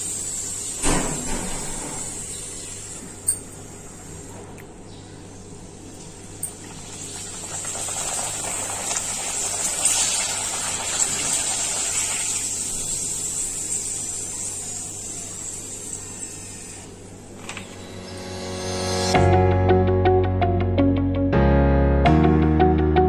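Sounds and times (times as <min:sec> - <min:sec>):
papad sizzling in hot oil: 0:06.6 - 0:16.5.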